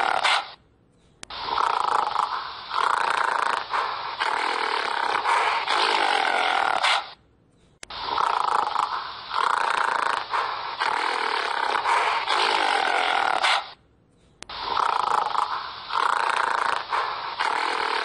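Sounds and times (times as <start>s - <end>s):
gorilla roaring and grunting: 0.0s - 0.5s, 1.5s - 7.1s, 8.0s - 13.8s.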